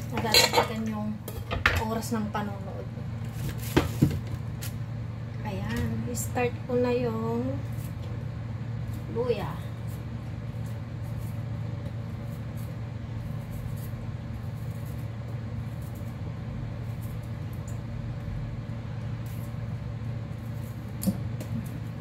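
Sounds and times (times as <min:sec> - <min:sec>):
low machine hum: 0:00.0 - 0:22.0
knife scraping ginger skin: 0:09.8 - 0:17.8.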